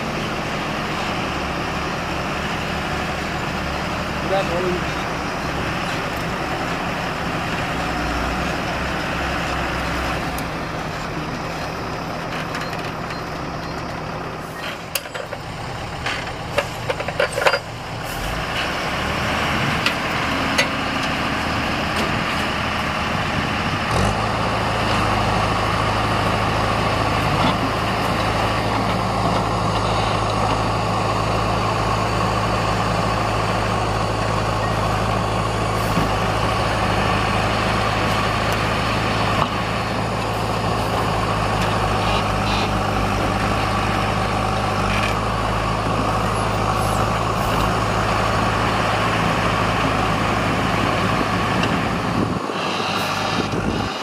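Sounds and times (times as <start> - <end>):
truck diesel engine running: 0.0 - 54.0.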